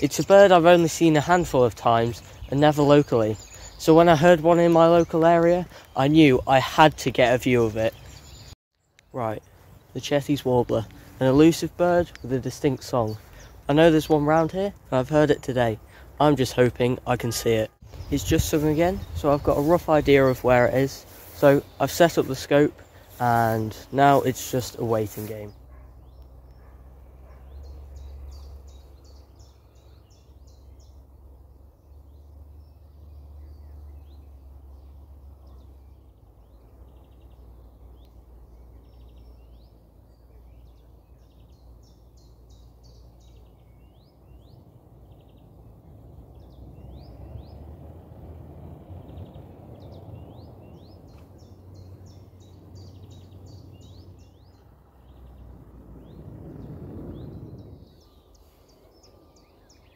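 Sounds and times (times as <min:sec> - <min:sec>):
songbirds singing: 0:00.0 - 0:59.9
low wind rumble: 0:09.4 - 0:59.9.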